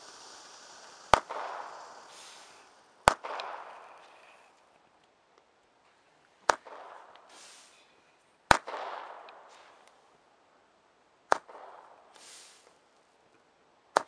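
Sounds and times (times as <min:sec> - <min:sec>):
firework bangs: 0:00.0 - 0:04.6, 0:08.5 - 0:10.0
firework hissing: 0:00.0 - 0:04.8, 0:07.2 - 0:07.9, 0:11.9 - 0:12.9.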